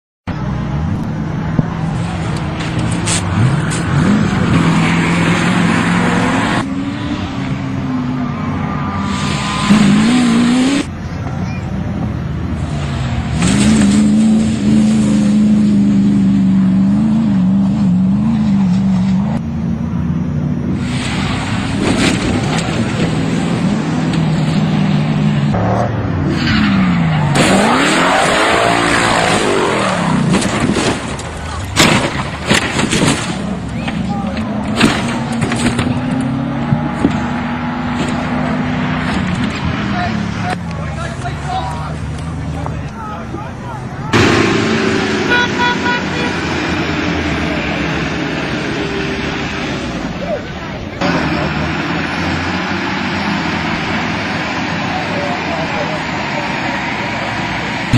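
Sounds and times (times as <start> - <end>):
race vehicle engines revving: 0.2 - 57.9
constant noisy rush: 0.3 - 57.9
horn toots: 44.1 - 46.7.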